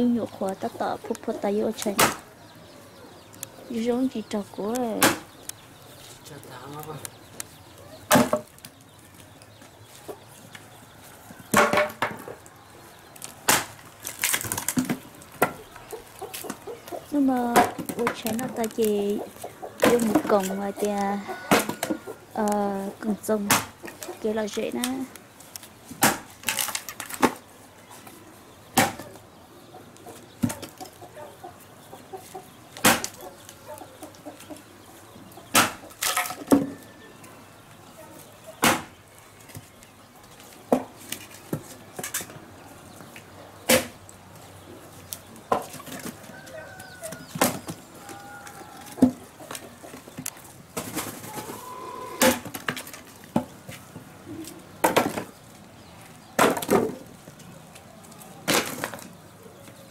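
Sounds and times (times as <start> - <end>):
chickens clucking: 0.0 - 26.3, 27.2 - 59.9
axe splitting firewood: 26.0 - 27.4, 32.8 - 33.2, 38.6 - 38.9, 43.7 - 44.0.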